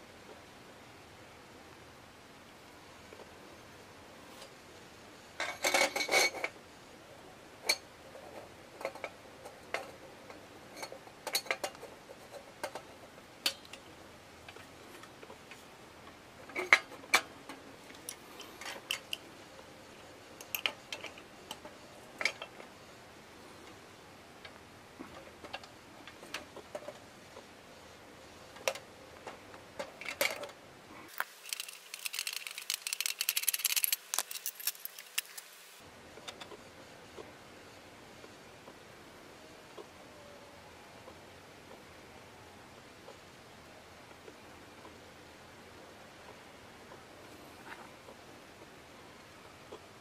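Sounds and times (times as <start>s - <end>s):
metallic clicks and taps of tools: 20.4s - 21.6s.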